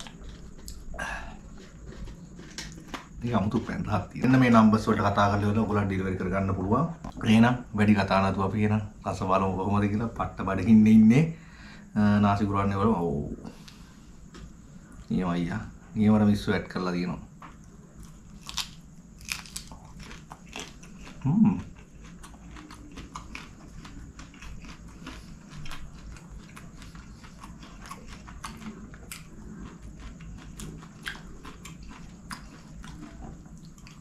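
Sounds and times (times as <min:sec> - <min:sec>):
close-miked chewing: 0:00.0 - 0:04.5, 0:17.5 - 0:34.0.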